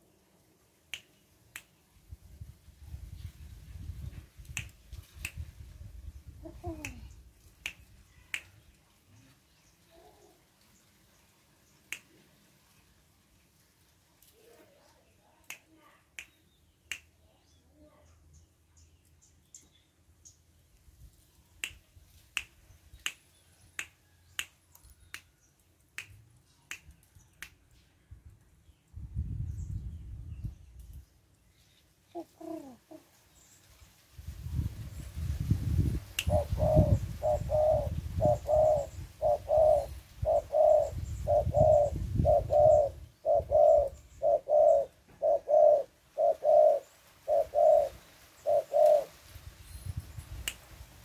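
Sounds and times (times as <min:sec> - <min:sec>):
fingers snapping: 0:00.9 - 0:01.7, 0:04.5 - 0:05.4, 0:07.6 - 0:08.6, 0:11.9 - 0:12.1, 0:15.4 - 0:17.1, 0:21.6 - 0:21.8, 0:23.8 - 0:27.6.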